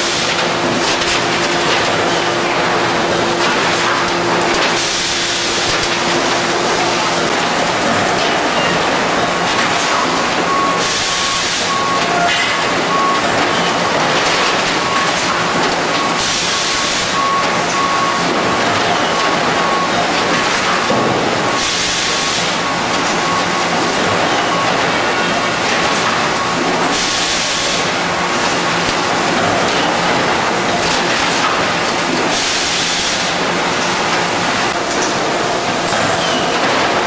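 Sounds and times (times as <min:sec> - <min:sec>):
loud machine noise: 0:00.0 - 0:37.0
faint repeating beep: 0:10.0 - 0:13.3.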